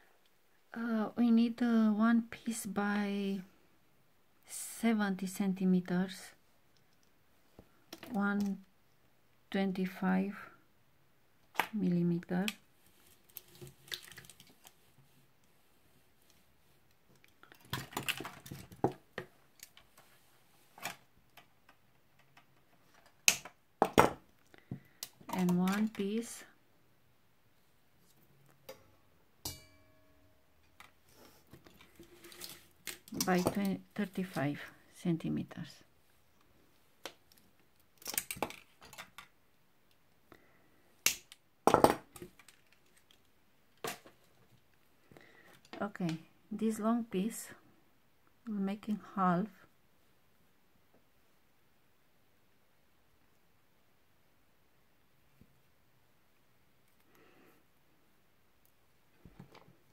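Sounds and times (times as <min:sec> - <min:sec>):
wire clicks and rustles: 0:12.4 - 0:26.5, 0:30.6 - 0:34.8, 0:36.3 - 0:40.1, 0:41.0 - 0:46.2
wire clicking and snapping: 0:23.1 - 0:23.6, 0:37.0 - 0:39.3, 0:41.0 - 0:41.4.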